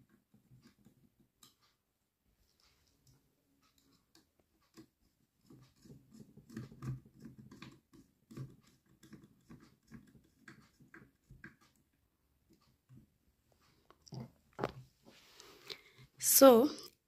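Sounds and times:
screwdriver turning a screw: 3.6 - 11.9.

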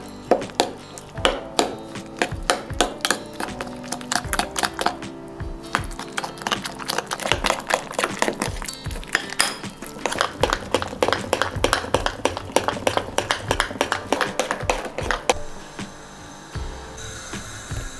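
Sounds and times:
spoon scraping glass bowl: 0.0 - 5.0, 5.6 - 15.4
background music: 0.0 - 17.9.

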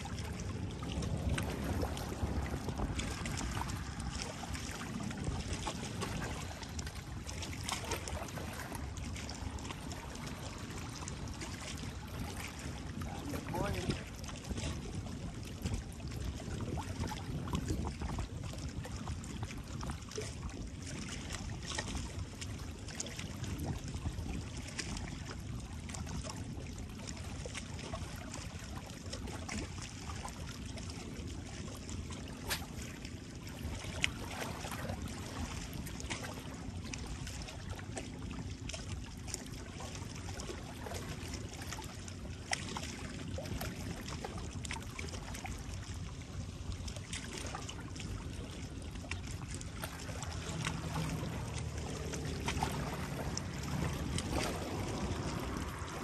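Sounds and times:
low rumble: 0.0 - 14.3, 48.1 - 56.0
seawater lapping and trickling: 0.0 - 56.0.

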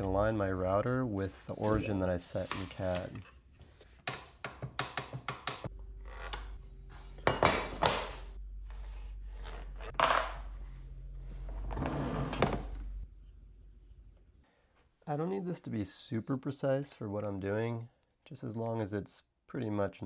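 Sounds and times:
steady low hum: 5.7 - 14.4.

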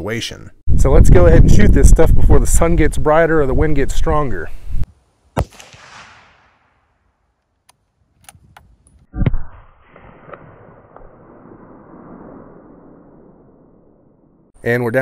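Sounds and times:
wind on microphone: 0.7 - 4.9
rifle shot: 5.4 - 7.2, 9.3 - 14.5.

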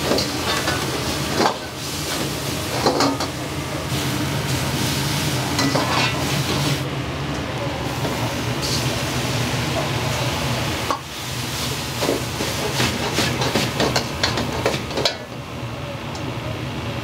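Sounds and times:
food sizzling in a wok: 0.0 - 6.9, 7.8 - 15.4
metal ladle scraping a wok: 5.6 - 6.6.

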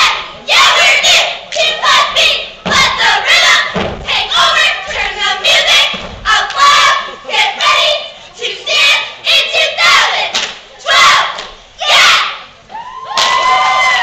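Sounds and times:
cheerleaders chanting in unison: 0.0 - 12.6
thuds on a mat: 3.6 - 4.1.

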